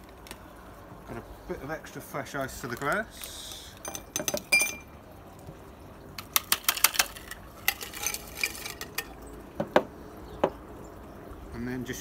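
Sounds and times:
ice cubes clinking into glass: 3.8s - 4.9s, 6.2s - 9.2s.

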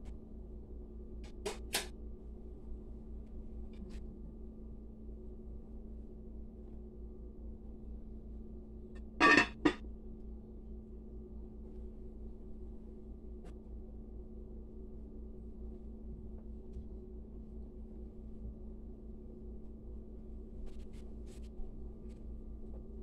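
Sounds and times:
steady low hum: 0.0s - 23.0s
glass lid clinking on crock: 9.2s - 9.8s.

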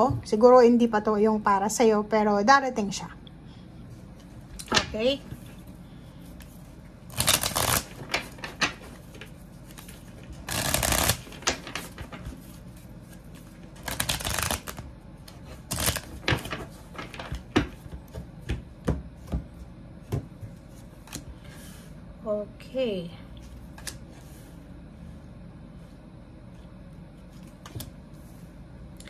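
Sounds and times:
cards shuffling: 6.4s - 18.2s, 23.7s - 24.0s
cards tapping and slapping: 7.1s - 9.3s, 10.4s - 12.4s, 13.8s - 14.9s, 15.7s - 19.4s.

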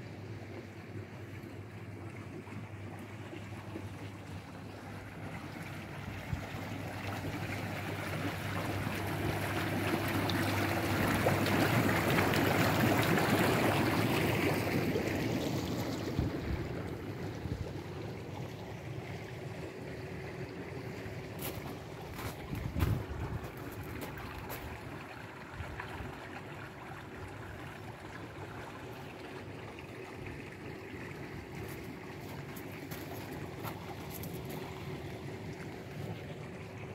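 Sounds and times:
churning bubbling water: 0.0s - 36.9s
pump humming: 0.0s - 36.9s
wind buffeting microphone: 22.1s - 24.8s.

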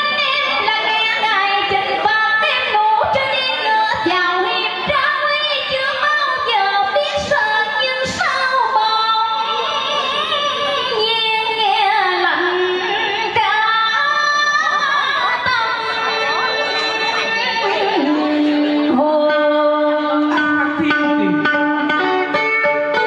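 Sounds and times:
woman singing into a microphone: 0.0s - 22.3s
musical accompaniment: 9.2s - 23.0s.

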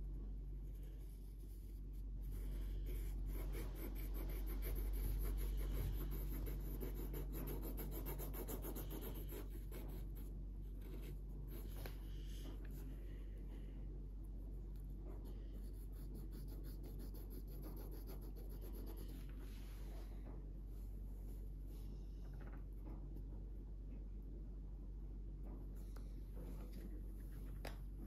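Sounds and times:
marker scratching on paper: 2.2s - 10.2s.

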